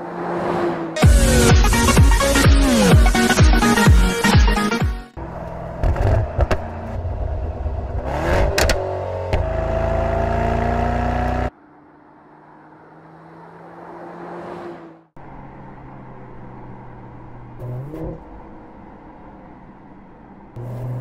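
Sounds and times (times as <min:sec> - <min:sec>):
car approaching: 0:05.1 - 0:21.0
car engine revving: 0:05.2 - 0:18.6, 0:20.5 - 0:21.0.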